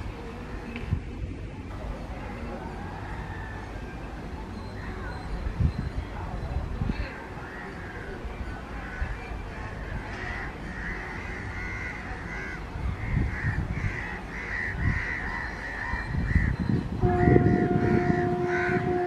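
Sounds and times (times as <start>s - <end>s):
train rumble: 0.0s - 19.0s
crows cawing: 10.0s - 16.6s, 17.2s - 19.0s.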